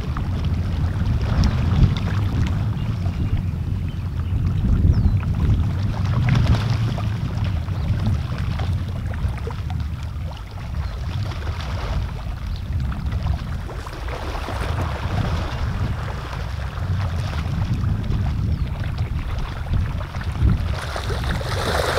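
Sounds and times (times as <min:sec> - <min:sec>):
faint water ticks and splashes: 0:00.0 - 0:21.9
wind buffeting microphone: 0:00.0 - 0:21.9.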